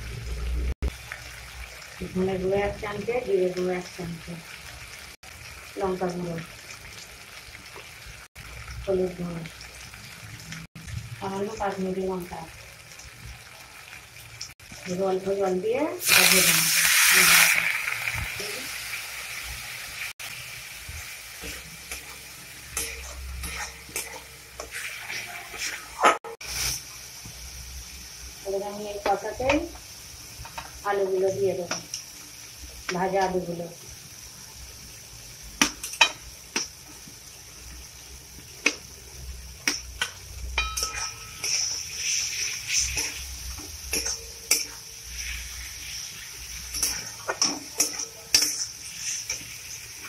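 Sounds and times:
spices sizzling in oil: 0.0 - 50.0
metal spatula scraping a pan: 21.4 - 26.8, 40.6 - 50.0.

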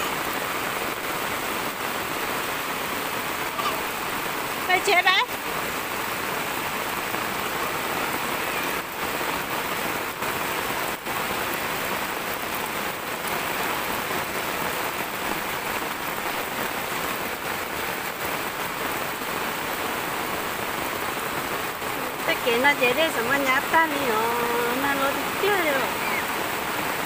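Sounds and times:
heavy rain on flooded ground: 0.0 - 27.0.

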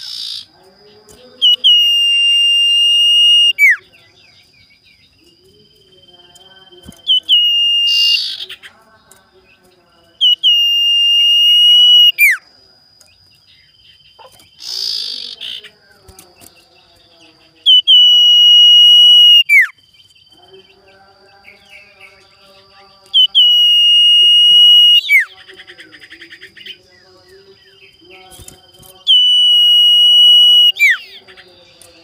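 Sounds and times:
fast rattling bird trill: 0.0 - 12.4, 13.2 - 32.0
bird whistling: 1.4 - 3.9, 6.9 - 8.5, 10.2 - 12.4, 17.6 - 19.8, 23.2 - 25.3, 29.0 - 31.2.

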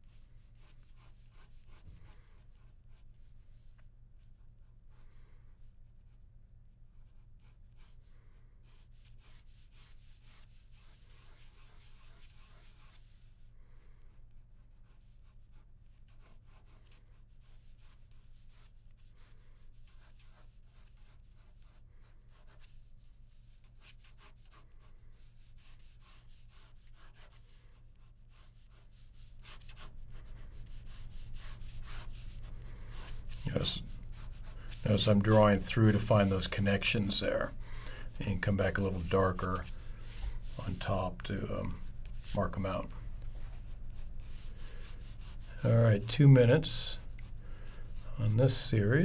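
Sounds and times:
pen scratching on paper: 0.0 - 3.6, 7.0 - 13.4, 14.6 - 46.2
low steady hum: 24.5 - 49.0.

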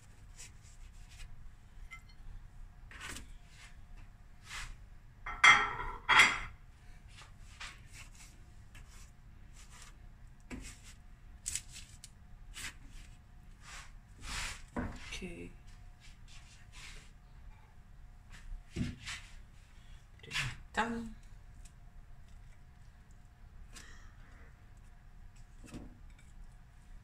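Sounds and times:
baking tray clatters: 5.3 - 6.5
baking paper and meat rustling: 7.1 - 15.3.

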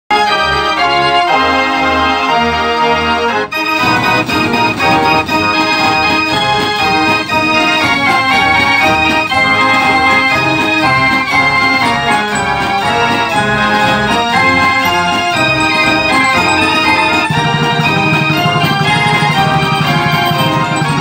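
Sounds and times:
fair organ playing a tune: 0.1 - 21.0
steady drum beat: 3.6 - 21.0.

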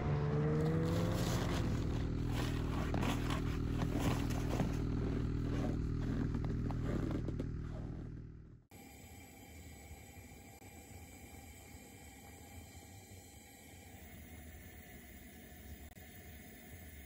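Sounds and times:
small engine running: 0.0 - 13.8
footsteps crunching on snow: 0.5 - 8.2.

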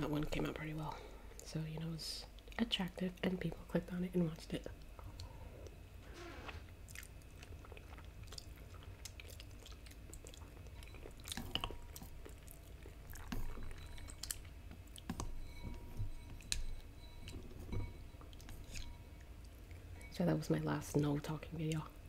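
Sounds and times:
chewing noodles: 6.6 - 20.1.

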